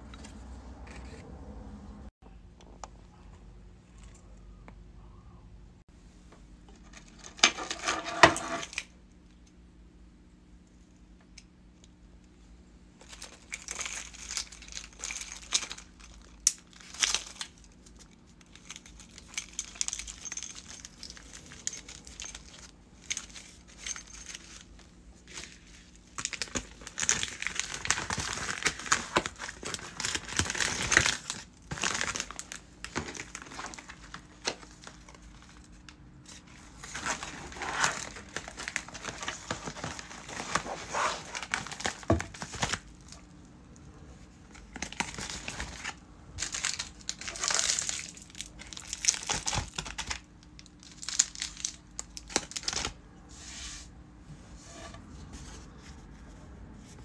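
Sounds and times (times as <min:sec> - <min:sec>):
packaging crinkling and rustling: 0:13.0 - 0:43.3, 0:44.4 - 0:53.0.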